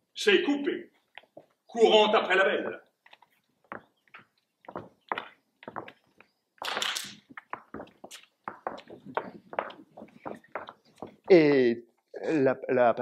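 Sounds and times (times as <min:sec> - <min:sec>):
shoes striking stage floor: 0:02.2 - 0:11.5.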